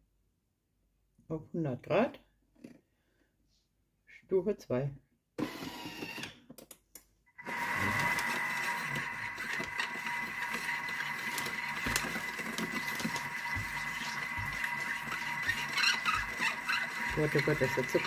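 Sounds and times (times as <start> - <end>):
food processor blade squealing: 7.4 - 18.0.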